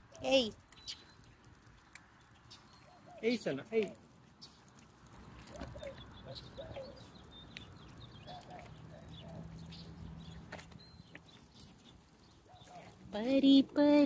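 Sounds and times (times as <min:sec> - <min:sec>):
bird chirps: 0:00.7 - 0:01.4, 0:02.4 - 0:03.4, 0:05.4 - 0:13.0.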